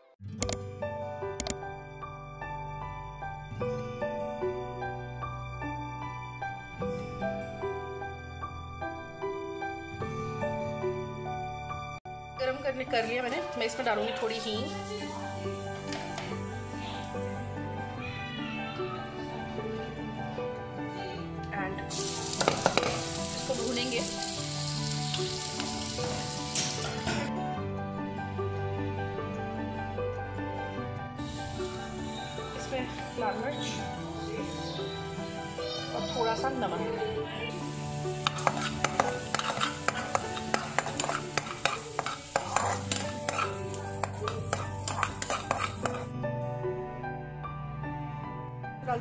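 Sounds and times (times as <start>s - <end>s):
soft background music: 0.0s - 49.0s
peel sizzling in hot oil: 21.9s - 27.1s, 31.2s - 36.0s, 37.5s - 46.1s
spatula scraping a pan: 38.0s - 46.1s.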